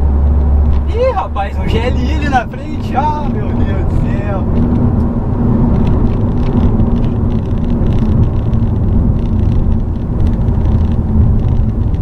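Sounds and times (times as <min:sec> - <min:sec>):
car engine drone: 0:00.0 - 0:12.0
road and tyre rumble: 0:00.0 - 0:12.0.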